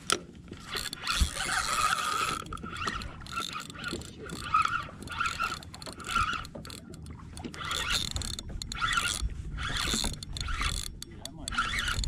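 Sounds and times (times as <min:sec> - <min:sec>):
fishing reel gears whirring: 0:00.0 - 0:12.0
steady low rumble: 0:08.4 - 0:11.6.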